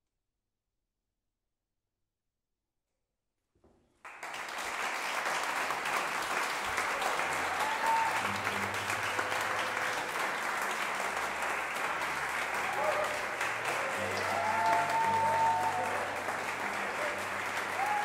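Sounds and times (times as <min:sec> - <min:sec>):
audience applauding: 0:04.0 - 0:18.0.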